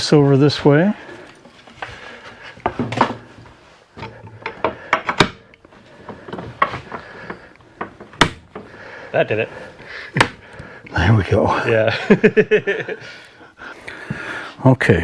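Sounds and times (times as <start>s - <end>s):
wooden knocks: 4.0s - 8.9s, 10.2s - 10.6s.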